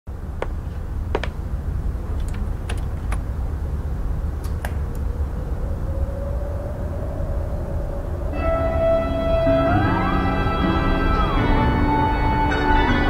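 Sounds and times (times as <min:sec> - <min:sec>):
low rumble: 0:00.6 - 0:11.3
faint rising tone: 0:05.0 - 0:11.8.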